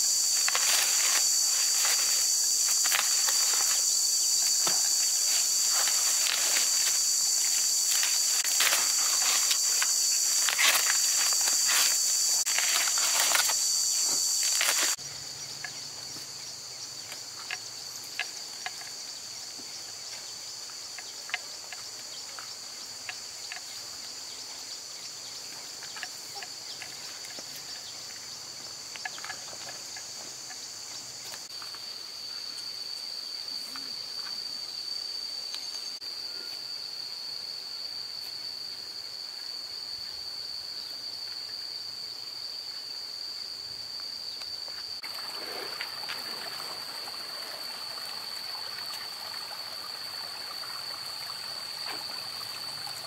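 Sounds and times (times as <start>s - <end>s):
high-pitched insect chorus: 0.0s - 53.0s
corn husks crackling and tearing: 0.3s - 15.0s.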